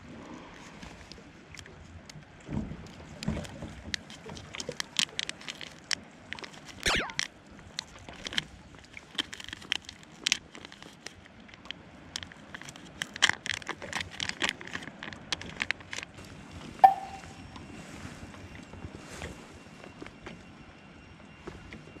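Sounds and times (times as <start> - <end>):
brief ring: 16.8 - 17.6.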